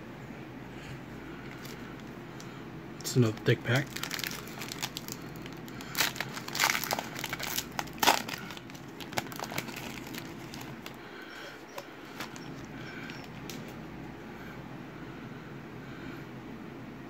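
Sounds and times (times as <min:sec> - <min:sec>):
foil wrapper crinkling and tearing: 0:01.5 - 0:01.8, 0:03.1 - 0:13.7.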